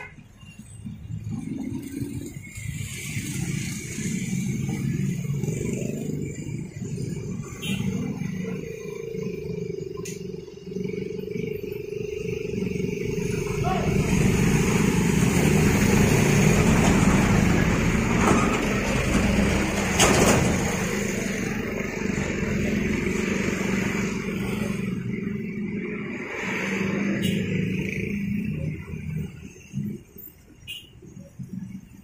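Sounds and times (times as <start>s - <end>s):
road traffic passing: 0.0s - 32.0s.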